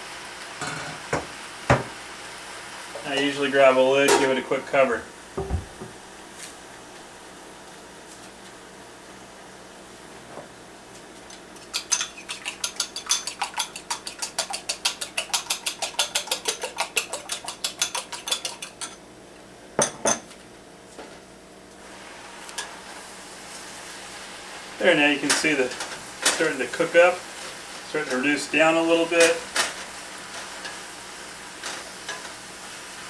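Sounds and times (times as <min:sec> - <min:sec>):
spoon clinking in ceramic bowl: 0:11.7 - 0:19.0
spoon knocking against bowl: 0:11.8 - 0:19.0.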